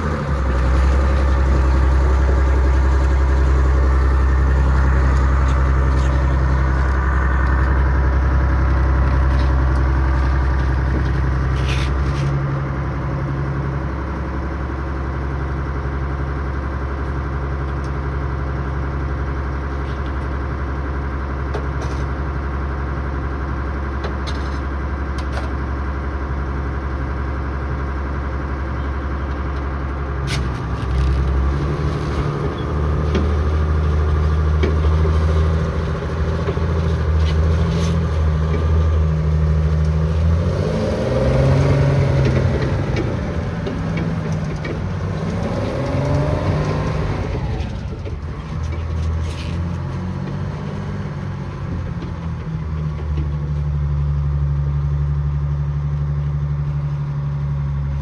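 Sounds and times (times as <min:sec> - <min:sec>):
diesel engine running: 0:00.0 - 0:58.0
running gear squeaks and clanks: 0:30.3 - 0:33.5.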